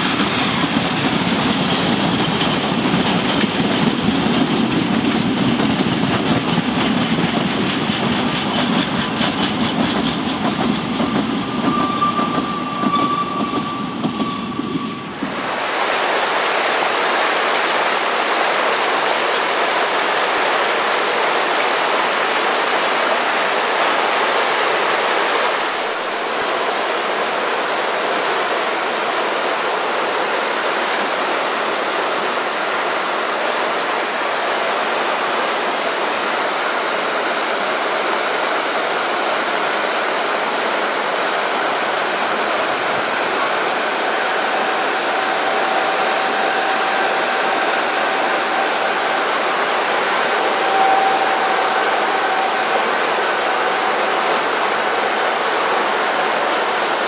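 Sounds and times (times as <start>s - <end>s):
river rapids rushing: 15.0s - 57.0s.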